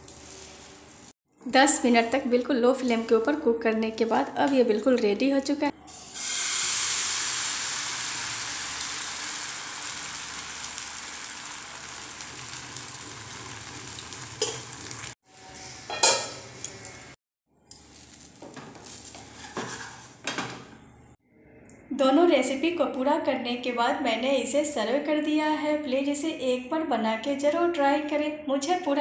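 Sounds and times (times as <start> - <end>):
batter sizzling in a frying pan: 5.9 - 15.2.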